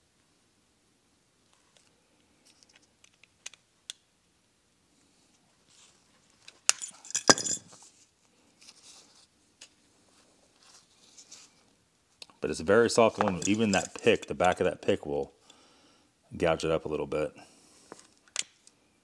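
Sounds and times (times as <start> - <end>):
metal tools clicking and scraping: 6.7 - 7.8, 13.1 - 14.7.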